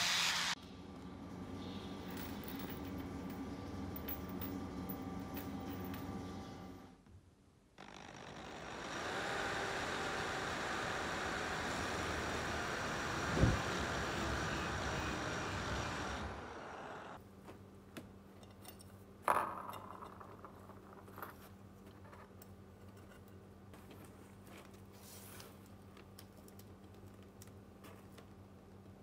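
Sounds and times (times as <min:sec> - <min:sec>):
drill press cutting steel: 0:07.8 - 0:17.2.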